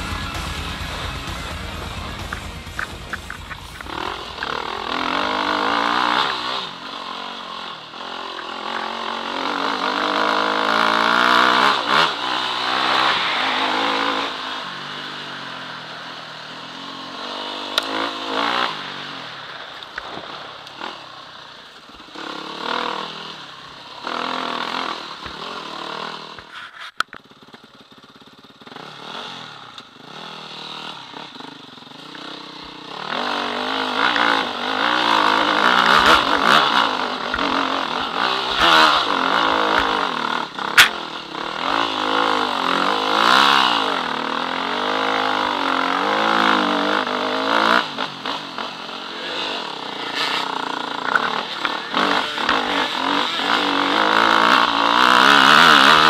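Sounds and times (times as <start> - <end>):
dirt bike engine revving: 0.0 - 56.0.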